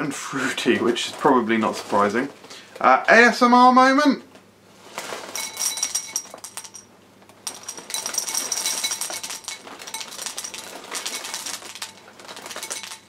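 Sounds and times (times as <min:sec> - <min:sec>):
cereal pouring into a ceramic bowl: 0:07.4 - 0:13.0.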